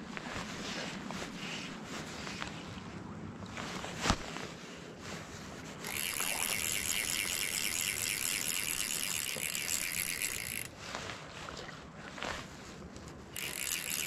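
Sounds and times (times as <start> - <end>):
fly reel drag clicking: 5.8 - 10.7, 13.4 - 14.0.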